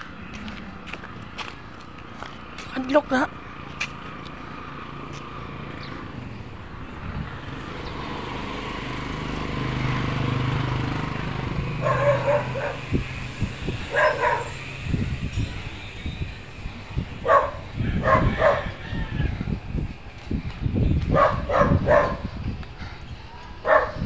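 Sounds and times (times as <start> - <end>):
engine humming: 0.0 - 24.0
dog barking: 11.8 - 12.9, 13.9 - 14.6, 17.2 - 18.8, 21.1 - 22.3, 23.6 - 24.0.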